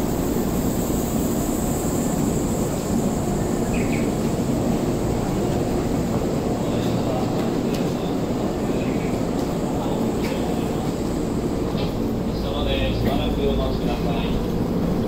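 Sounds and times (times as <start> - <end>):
train equipment humming: 0.0 - 15.0.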